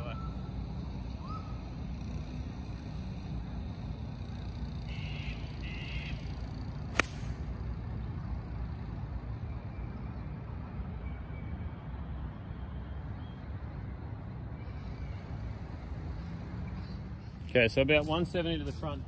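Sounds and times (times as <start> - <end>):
golf club striking ball: 6.9 - 7.4.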